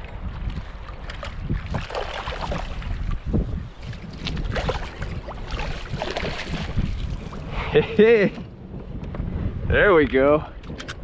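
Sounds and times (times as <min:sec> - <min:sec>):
water lapping and splashing: 0:00.0 - 0:08.4
wind buffeting microphone: 0:00.0 - 0:11.0
net splashing into water: 0:01.1 - 0:02.9, 0:04.2 - 0:06.8.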